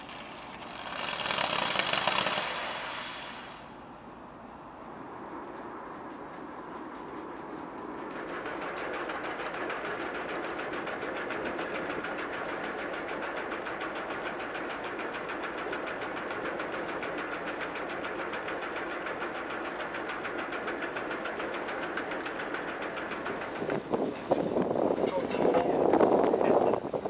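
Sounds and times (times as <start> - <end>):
water splashing onto gravel: 0.0 - 3.7.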